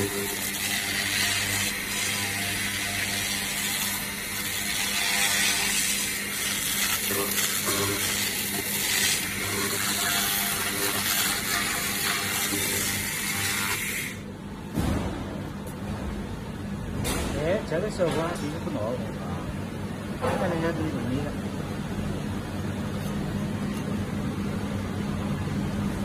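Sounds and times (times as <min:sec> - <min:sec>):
laser cleaning hissing crackle: 0:00.0 - 0:14.2.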